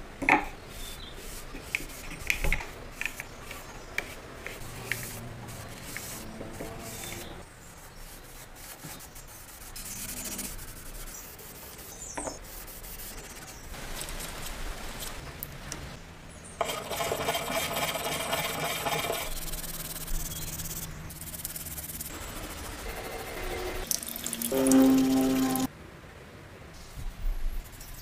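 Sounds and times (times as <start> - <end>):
brush scrubbing metal part: 0.7 - 13.6, 16.6 - 23.8.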